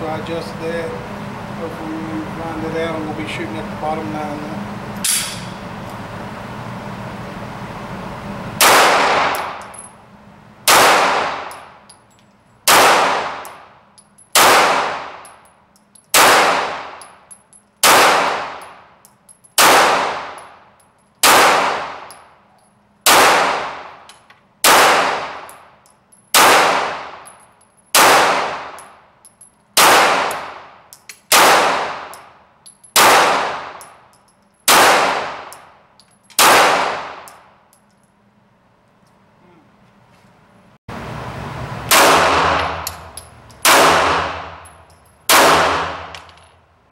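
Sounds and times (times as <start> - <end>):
pistol shots echoing indoors: 8.6 - 9.6, 10.6 - 11.6, 12.6 - 13.6, 14.3 - 15.3, 16.1 - 17.1, 17.8 - 18.7, 19.6 - 20.5, 21.2 - 22.2, 23.1 - 24.0, 26.3 - 27.3, 28.0 - 28.9, 29.8 - 30.7, 31.3 - 32.3, 33.0 - 33.8, 34.7 - 35.6, 36.4 - 37.5, 43.7 - 46.3.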